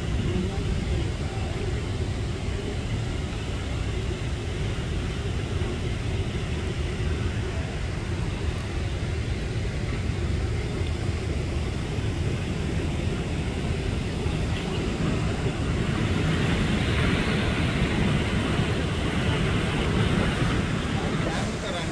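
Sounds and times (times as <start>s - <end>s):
waterfall rumble: 0.0s - 21.9s
rushing river water: 12.0s - 21.9s.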